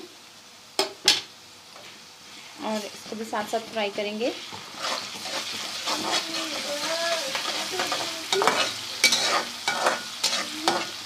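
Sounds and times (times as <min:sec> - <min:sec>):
onion sizzling in hot fat: 0:00.0 - 0:11.0
utensil scraping and knocking pan: 0:07.4 - 0:10.9.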